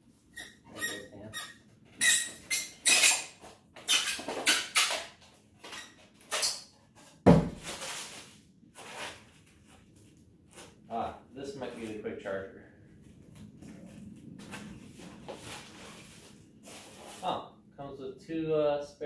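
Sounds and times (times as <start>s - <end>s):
styrofoam squeaking and scraping: 0.3s - 6.8s, 7.6s - 9.3s, 15.5s - 17.4s
sudden thump: 7.3s - 7.7s.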